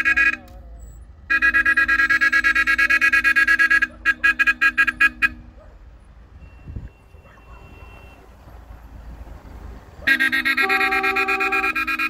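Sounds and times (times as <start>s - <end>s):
car horn toots: 0.0s - 0.6s, 1.3s - 5.6s, 6.4s - 8.5s, 10.0s - 12.0s.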